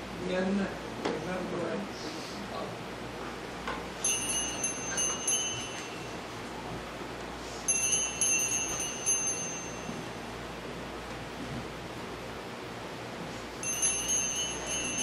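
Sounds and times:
small altar bells ringing: 4.0 - 6.5, 7.4 - 10.6, 13.5 - 15.0.

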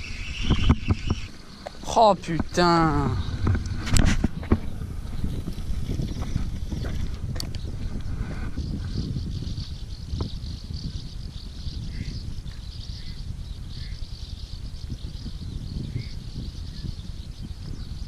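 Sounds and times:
bird chirps: 0.0 - 3.8
insects chorus pulsing: 0.0 - 12.1
wind rumbling on microphone: 0.0 - 18.0.

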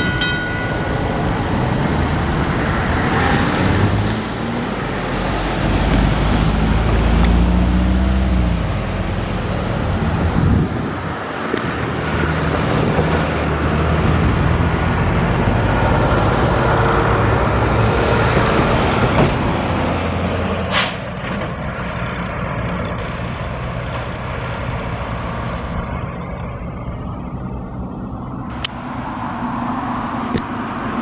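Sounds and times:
truck engine humming: 0.0 - 31.0
brief sharp hiss: 20.7 - 21.1.

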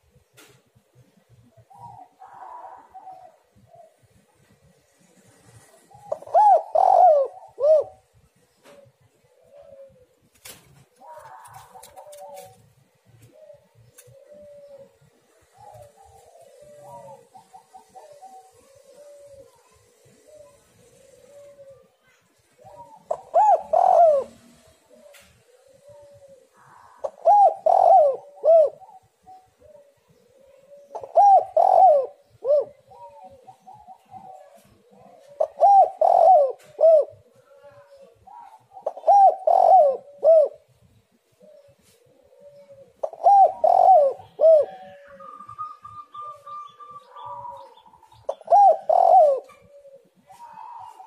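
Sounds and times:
dove cooing: 0.0 - 51.0.

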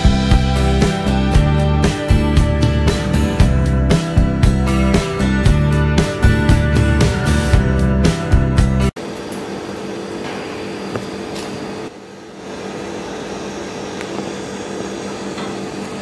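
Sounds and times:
background music: 0.0 - 9.0
machine hum: 0.0 - 16.0.

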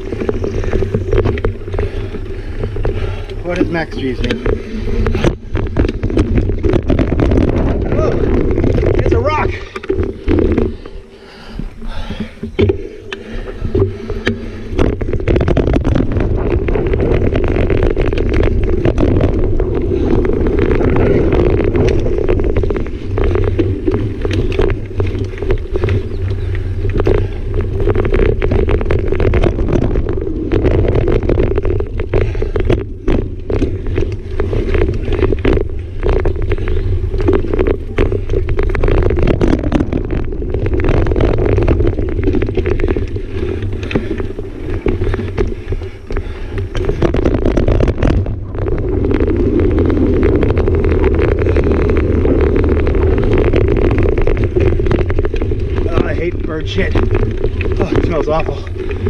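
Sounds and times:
bike clicks and rattles: 0.0 - 59.0
tyres rumbling on dirt trail: 0.0 - 59.0
wind noise on microphone: 0.0 - 59.0.

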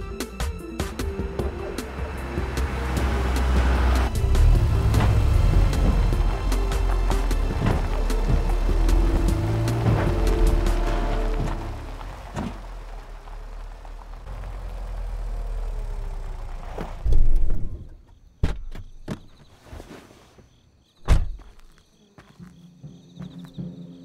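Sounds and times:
car rumbling over dirt track: 0.9 - 18.0
sharp knocks and thuds: 2.5 - 10.6, 16.6 - 19.5, 21.0 - 21.6
crickets chirping: 17.6 - 24.0.

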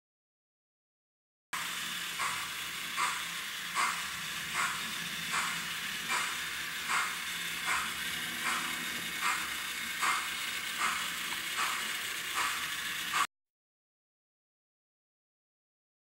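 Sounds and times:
steam locomotive chugging slowly: 1.6 - 13.3.

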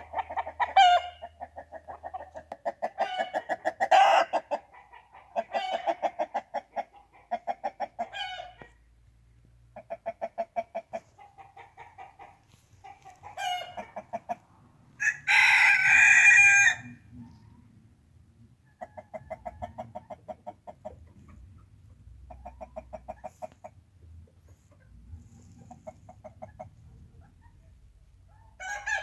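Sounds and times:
chickens clucking: 0.0 - 14.8, 18.4 - 29.0
rooster crowing: 15.0 - 17.0, 28.6 - 29.0.

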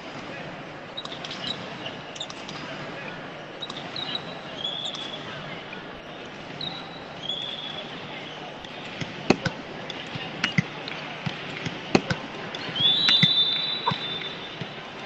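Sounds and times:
referee's whistle blown: 3.6 - 5.4, 6.1 - 8.8, 12.6 - 15.0.

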